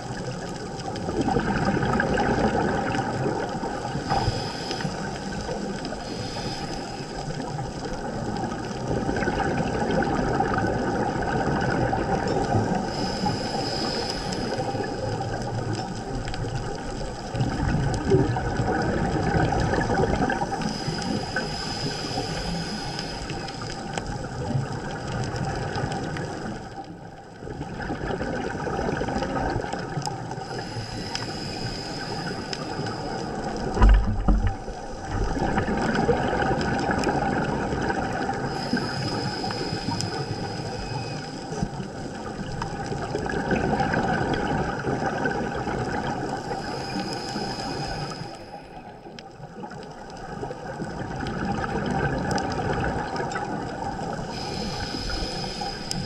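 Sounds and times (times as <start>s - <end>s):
underwater breathing bubbles gurgling: 0.0s - 56.0s
low thump: 33.8s - 34.6s.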